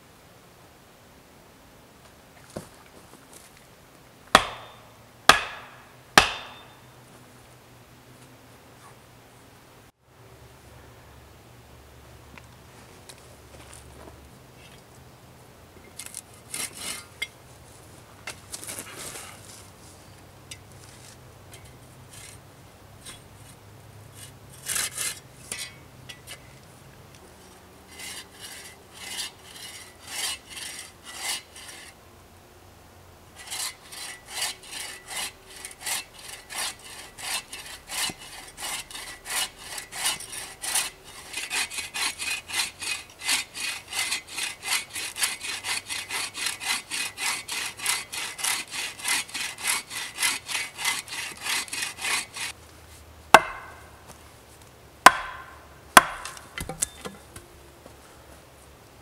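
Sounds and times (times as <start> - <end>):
hand saw cutting wood: 4.3 - 6.8, 16.0 - 17.2, 24.2 - 26.4, 27.8 - 32.0, 33.4 - 52.6, 53.3 - 53.9, 55.0 - 56.8.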